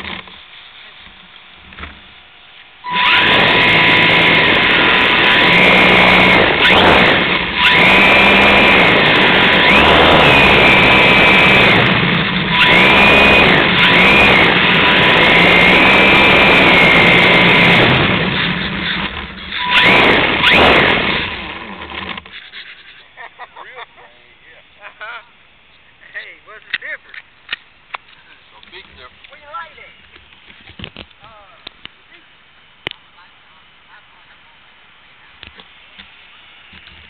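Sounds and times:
model motor high whine: 0.0 - 23.0.

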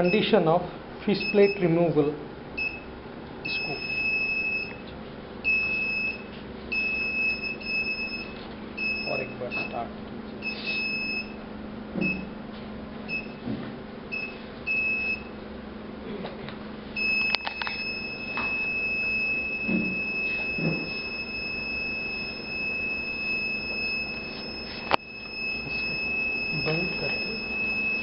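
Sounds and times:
electronic buzzer beeping: 0.0 - 0.4, 1.2 - 1.7, 2.6 - 4.8, 5.5 - 9.8, 10.4 - 11.4, 17.0 - 28.0.

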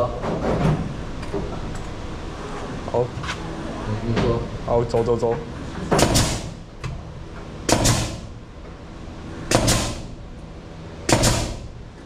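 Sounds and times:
nail gun firing: 5.9 - 6.6, 7.7 - 8.3, 9.5 - 10.1, 11.1 - 11.7.

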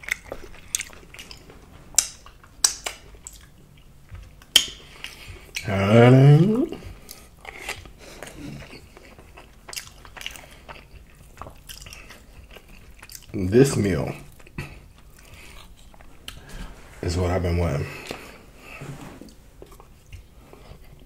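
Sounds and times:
chewing crunches and smacks: 0.0 - 5.7, 6.7 - 16.7, 19.3 - 21.0
person humming mmm: 5.6 - 7.0.

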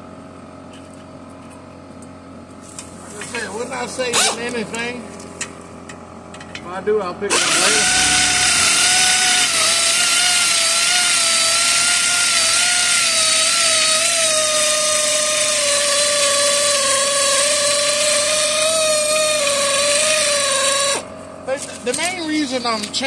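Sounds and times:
pneumatic air ratchet whining: 4.1 - 4.6, 7.3 - 21.1.

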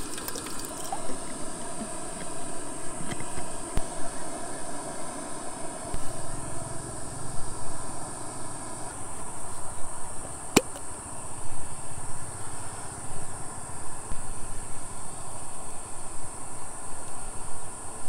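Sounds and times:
insects chirring: 0.0 - 18.0
plastic mug lid click: 10.6 - 10.8.

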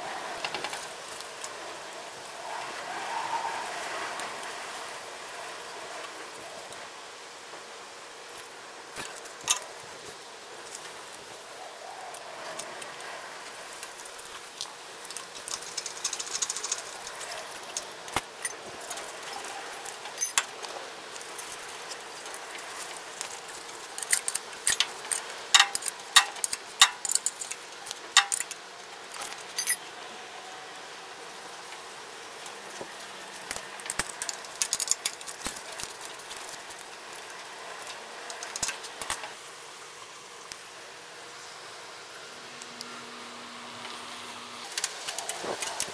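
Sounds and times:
hand tools clinking on metal: 20.0 - 20.5, 23.3 - 27.6, 28.2 - 28.6, 29.2 - 29.8.

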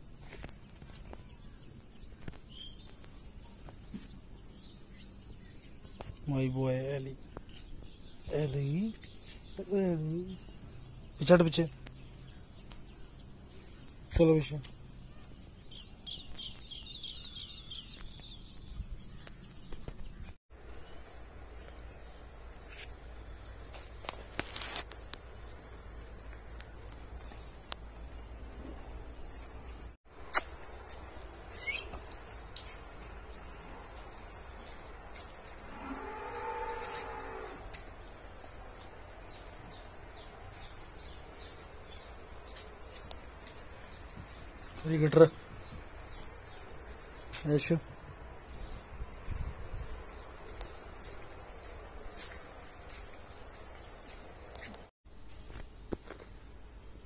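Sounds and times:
insects droning: 20.5 - 57.0
insect drone: 28.4 - 44.7
sharp click: 30.3 - 31.0
falling chirp: 31.5 - 32.4.

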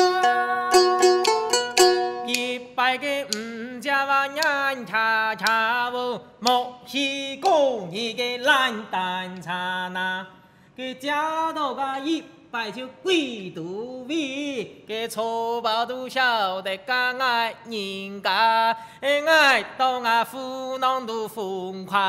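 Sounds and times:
plucked lute: 0.0 - 2.8
person singing: 0.0 - 18.4
bamboo clapper clicks: 1.2 - 2.6, 3.3 - 3.5, 4.4 - 4.7, 5.4 - 5.7.

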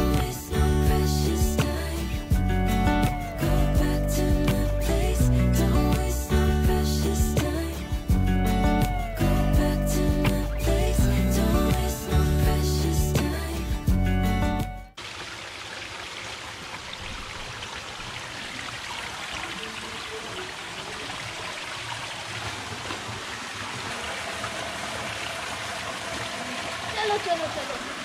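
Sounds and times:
background music: 0.0 - 15.0
stream running over rocks: 15.0 - 28.0.

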